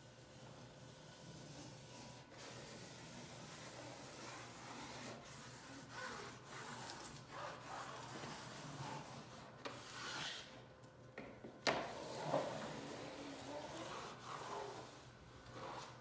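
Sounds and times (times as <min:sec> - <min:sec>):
wet cloth wiping wallpaper: 0:00.0 - 0:10.5, 0:11.8 - 0:16.0.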